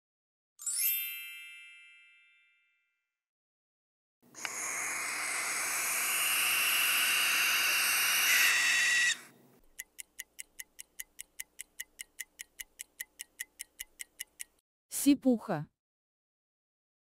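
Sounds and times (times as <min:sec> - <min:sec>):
bell-like chime: 0:00.6 - 0:03.0
barn owl screech: 0:04.4 - 0:09.3.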